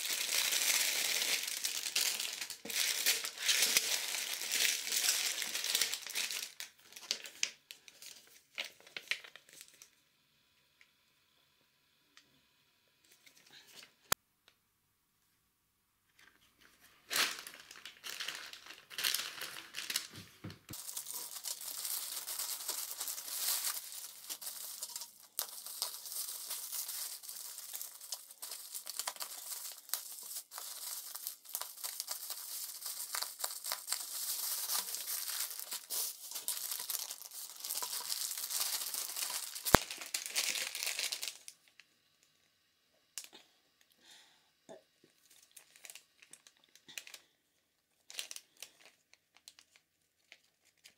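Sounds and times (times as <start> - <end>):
bubble wrap crinkling and tearing: 0.0 - 9.9, 16.8 - 41.9, 45.2 - 50.9.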